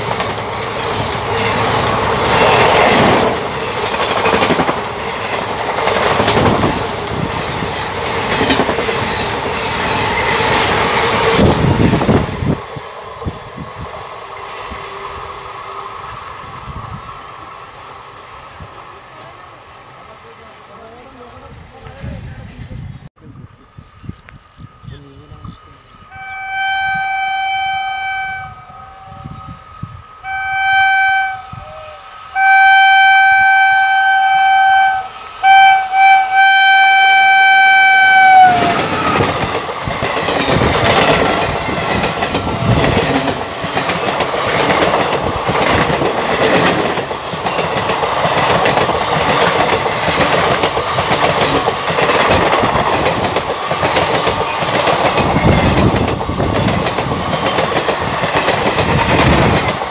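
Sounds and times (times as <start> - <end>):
train wheels clattering: 0.0 - 12.5, 38.6 - 59.9
train horn blasts: 26.1 - 29.4, 30.2 - 39.3.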